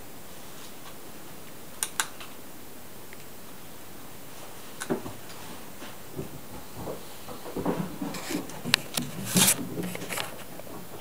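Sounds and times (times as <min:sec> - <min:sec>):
steady hiss: 0:00.0 - 0:11.0
sharp clicks: 0:01.8 - 0:02.3.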